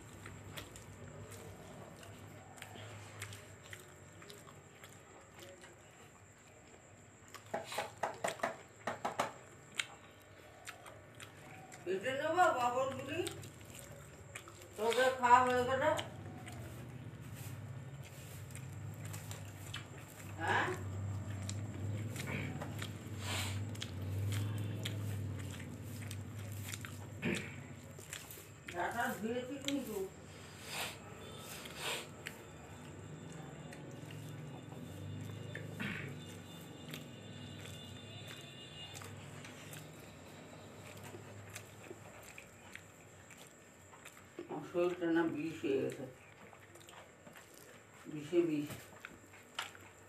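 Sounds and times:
person chewing food: 0:00.0 - 0:50.0
smacking mouth clicks: 0:07.3 - 0:11.9, 0:18.0 - 0:28.8, 0:45.9 - 0:47.8.

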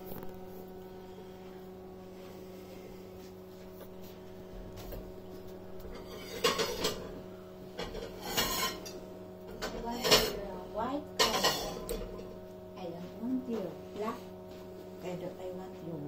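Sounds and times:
steady low hum: 0:00.0 - 0:16.0
dishes and utensils clattering: 0:05.9 - 0:07.2, 0:07.8 - 0:10.4, 0:11.2 - 0:12.3.

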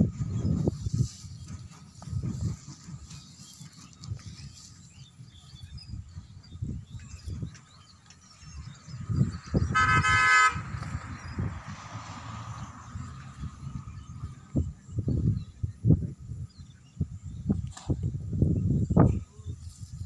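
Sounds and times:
vehicle horn honk: 0:09.6 - 0:10.7.

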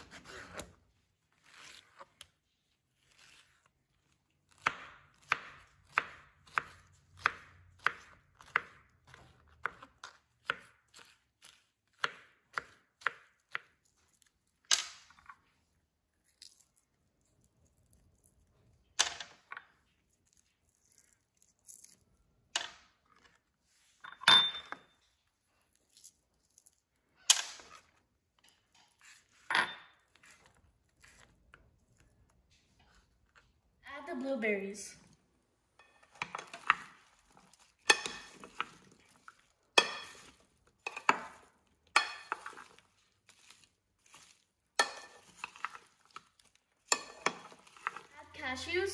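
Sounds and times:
knife chopping on plastic board: 0:04.5 - 0:13.8.

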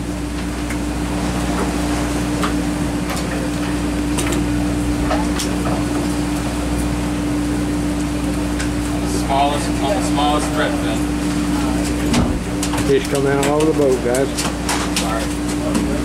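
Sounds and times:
boat machinery humming: 0:00.0 - 0:16.0.

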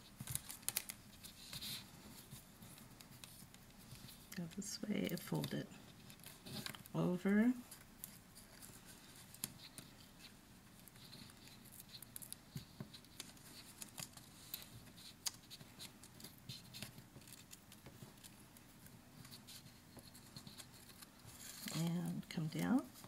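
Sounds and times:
foil tape clicks and crinkles: 0:00.1 - 0:01.8, 0:10.8 - 0:22.9.

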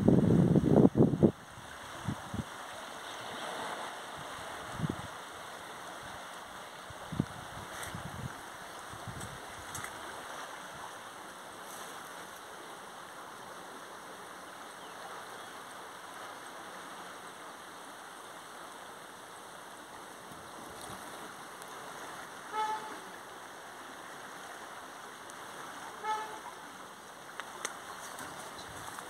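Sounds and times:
river rushing: 0:00.0 - 0:29.0
short horn toots: 0:22.5 - 0:23.1, 0:25.9 - 0:26.6.

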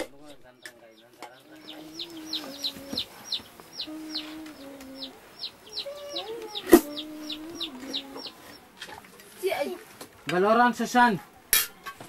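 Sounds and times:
chicks peeping: 0:00.2 - 0:09.4.

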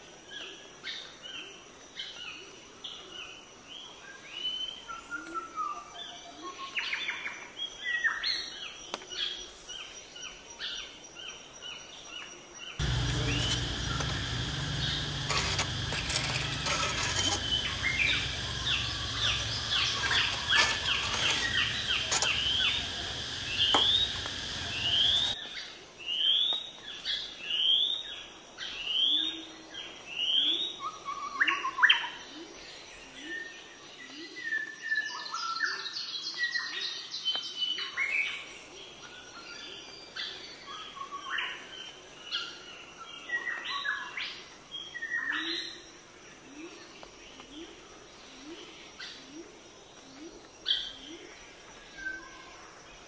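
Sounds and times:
small birds chirping: 0:12.8 - 0:25.6.

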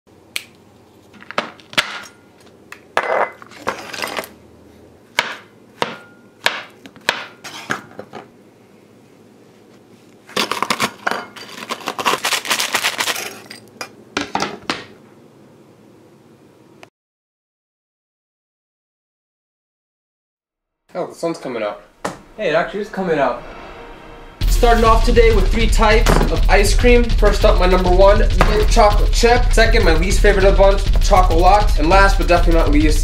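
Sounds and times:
knife chopping on cutting board: 0:05.2 - 0:07.8.

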